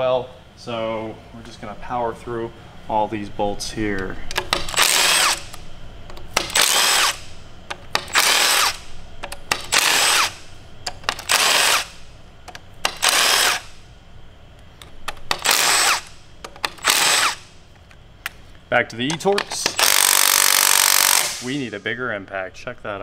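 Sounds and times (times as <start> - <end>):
impact driver whirring: 4.3 - 12.0, 12.8 - 13.8, 15.0 - 17.5, 19.6 - 21.5.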